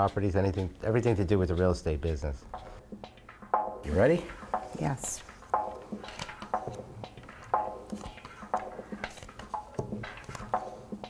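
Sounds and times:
playing cards tapping on table: 5.6 - 10.8.

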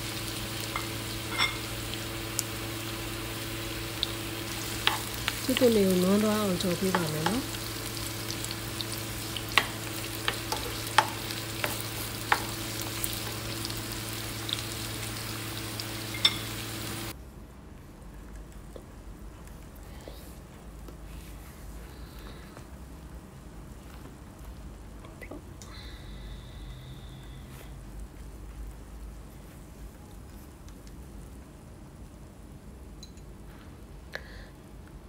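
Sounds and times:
onions sizzling in oil: 0.0 - 17.1
steady low hum: 0.0 - 35.0
wooden spoon knocking on pan: 6.9 - 7.5, 9.5 - 13.4.

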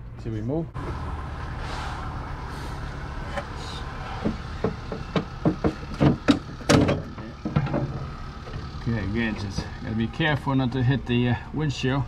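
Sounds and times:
plastic knocks and clatters: 4.2 - 8.6.

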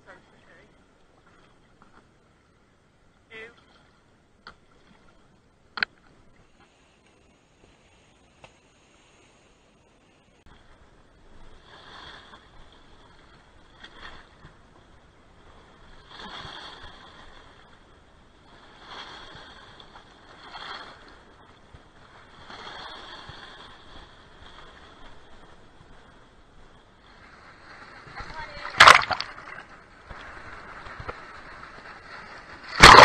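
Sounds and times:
waves washing over rock: 27.0 - 33.0.

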